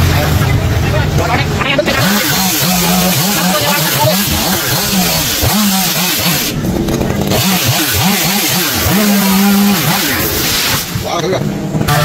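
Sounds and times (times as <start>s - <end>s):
chainsaw engine revving: 0.0s - 12.0s.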